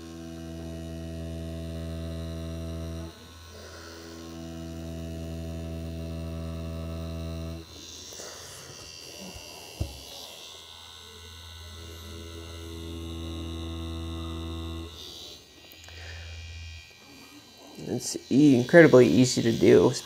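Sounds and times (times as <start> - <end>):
tattoo machine humming: 0.0 - 20.0.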